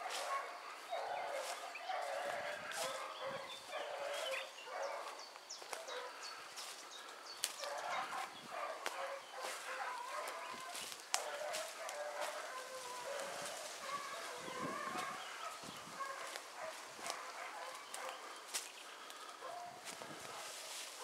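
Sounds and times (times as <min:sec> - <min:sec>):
dogs barking: 0:00.0 - 0:21.0
twigs snapping: 0:10.6 - 0:11.7.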